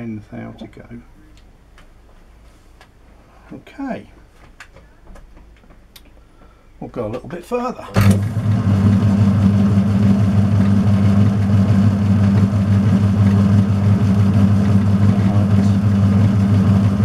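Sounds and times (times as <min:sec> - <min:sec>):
metal lathe humming: 0:08.0 - 0:17.0.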